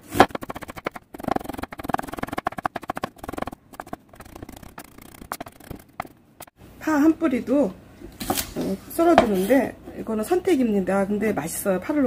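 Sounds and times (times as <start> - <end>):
knife chopping on wooden board: 0.0 - 6.1.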